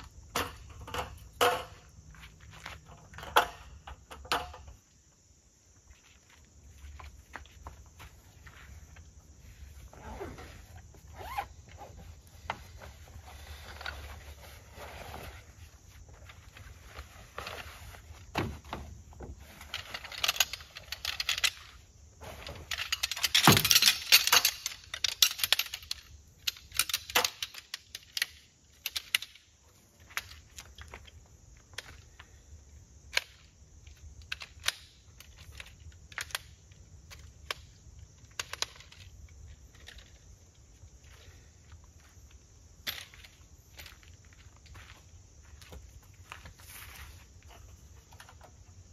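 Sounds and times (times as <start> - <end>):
wooden poles clicking and knocking: 0.0 - 5.0, 16.0 - 32.3, 33.0 - 44.9
camping gear rustling and clattering: 0.0 - 48.9.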